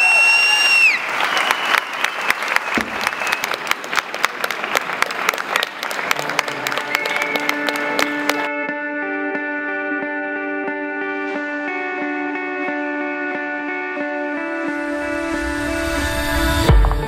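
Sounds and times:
audience applauding: 0.0 - 8.5
electric guitar sustained notes: 5.9 - 17.0.

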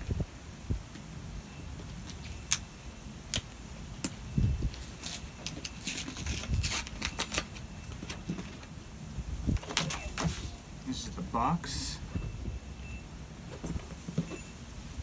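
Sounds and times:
paper sleeve crackling and rustling: 4.7 - 8.6.

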